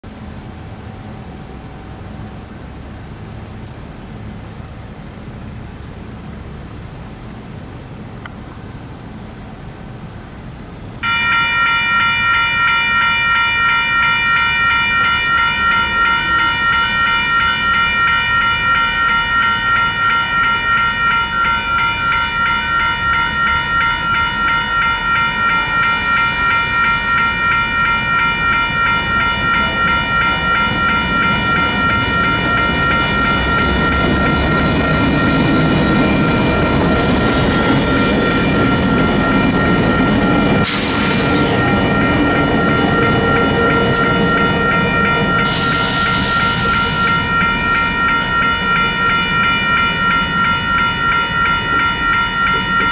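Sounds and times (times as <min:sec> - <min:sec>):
locomotive rumble on rails: 0:00.0 - 0:52.9
electronic crossing bells ringing: 0:11.0 - 0:52.9.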